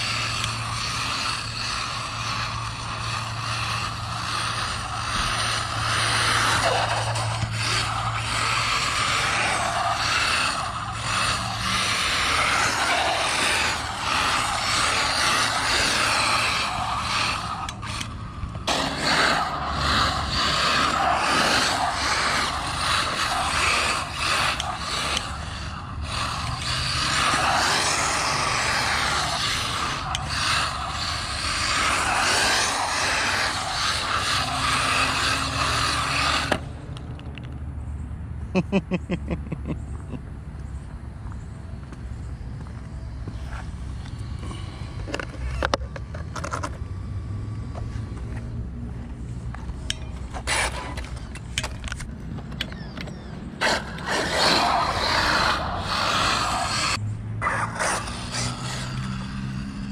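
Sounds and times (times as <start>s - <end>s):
electric rc car motor whine: 0.0s - 36.8s, 49.8s - 51.9s, 52.6s - 59.9s
tyres on concrete: 0.0s - 37.6s, 39.9s - 59.9s.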